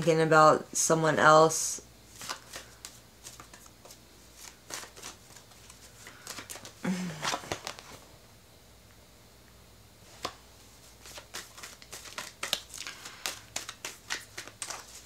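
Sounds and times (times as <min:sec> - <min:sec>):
cards being shuffled: 0:02.1 - 0:08.0, 0:10.2 - 0:15.0.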